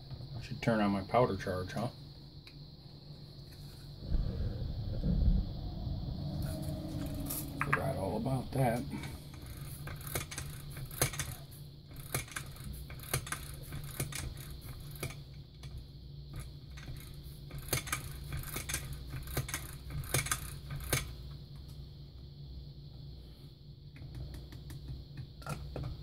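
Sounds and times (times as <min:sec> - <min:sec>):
low steady hum: 0:00.0 - 0:17.6.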